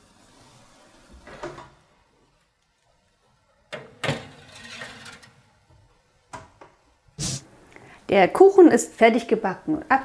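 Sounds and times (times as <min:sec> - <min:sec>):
metal pan scraping on rack: 0:03.8 - 0:05.4.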